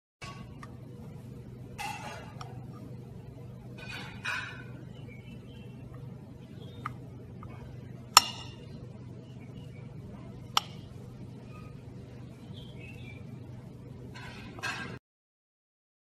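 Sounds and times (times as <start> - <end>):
steady low hum: 0.2 - 15.0
utensil clicking on plate: 10.5 - 10.9.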